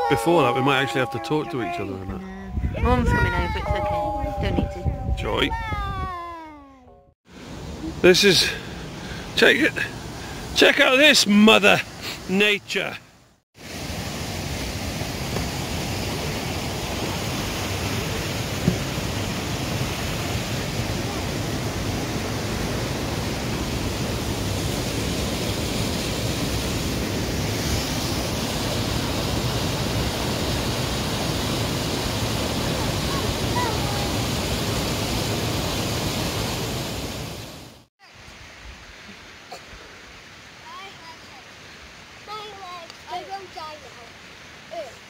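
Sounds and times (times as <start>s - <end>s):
waterfall roaring: 13.6s - 37.9s, 39.3s - 45.0s
knock: 18.6s - 18.9s.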